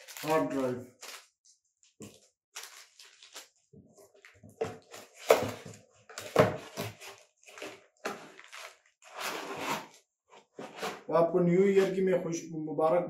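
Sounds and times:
packing pieces rustling: 0.0 - 10.0.

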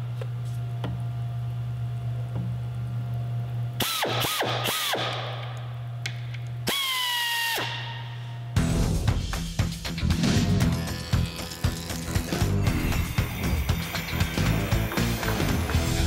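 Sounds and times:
steady low hum: 7.6 - 16.0
tapping arm motor whining: 10.1 - 16.0.

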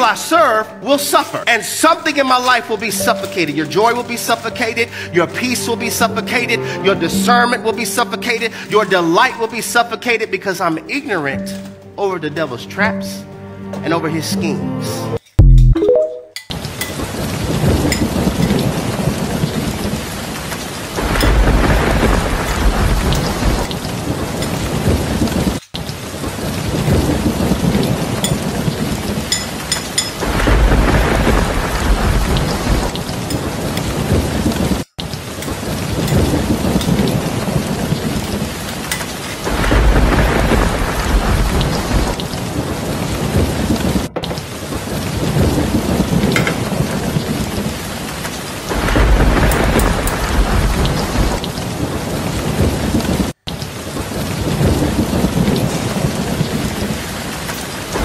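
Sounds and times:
heavy rain: 0.0 - 6.9, 7.7 - 9.3, 16.5 - 58.0
low thunder rumble: 20.9 - 25.5, 30.2 - 34.8, 39.5 - 47.9, 48.7 - 53.4.

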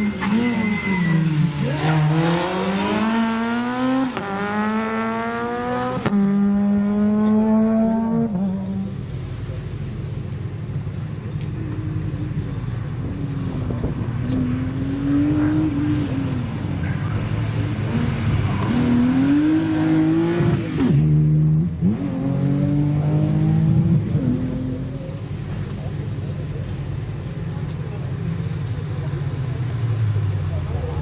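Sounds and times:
car engine revving hard: 1.2 - 9.0, 13.2 - 25.3.

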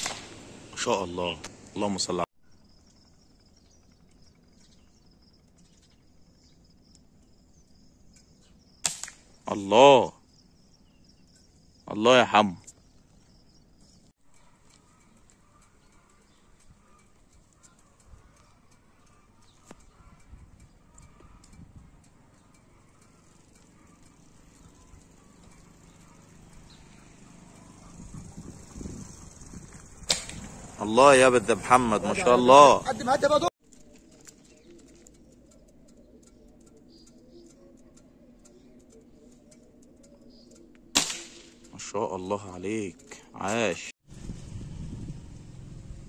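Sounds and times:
faint ticks: 13.9 - 28.0, 33.8 - 40.9
low steady rumble: 44.1 - 46.0.

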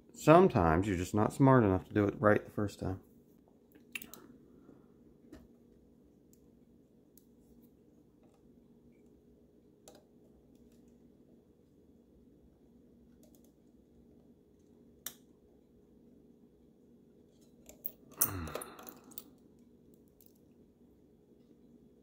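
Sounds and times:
small parts clattering: 17.4 - 19.4.

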